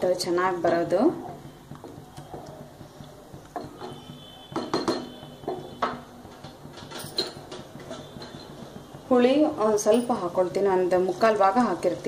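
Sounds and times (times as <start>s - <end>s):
spatula knocking against metal pot: 3.5s - 6.6s.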